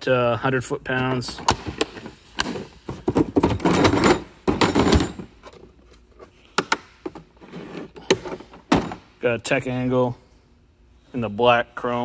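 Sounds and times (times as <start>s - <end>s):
plastic cases scraping: 7.4s - 8.7s.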